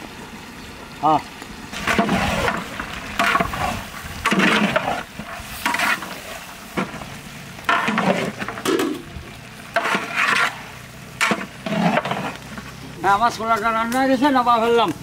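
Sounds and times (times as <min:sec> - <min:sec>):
metal spatula scraping a pot: 0:01.8 - 0:07.0, 0:07.6 - 0:09.1, 0:09.7 - 0:12.7.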